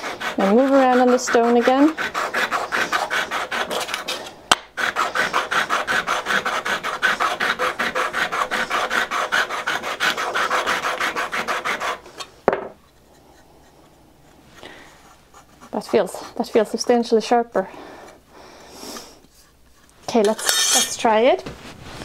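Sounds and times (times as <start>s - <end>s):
scraper honed on sharpening stone: 0.0s - 4.2s, 4.8s - 12.3s, 20.2s - 21.0s
knock on wood: 12.5s - 12.8s.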